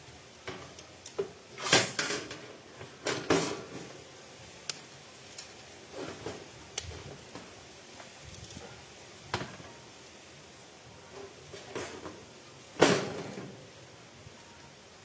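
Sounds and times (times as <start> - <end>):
metal grill grate clanking: 0.4 - 3.9.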